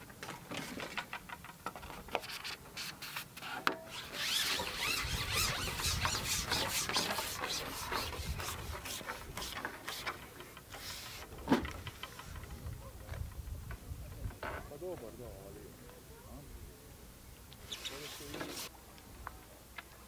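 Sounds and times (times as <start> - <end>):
fishing pole rubbing and scraping: 2.2 - 12.5, 17.6 - 18.7.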